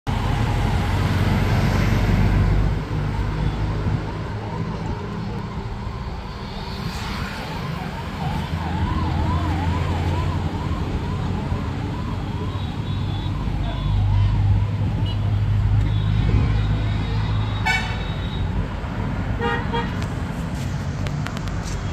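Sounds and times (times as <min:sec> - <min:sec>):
traffic rumble: 0:00.1 - 0:21.9
electronic siren yelping: 0:04.2 - 0:14.8.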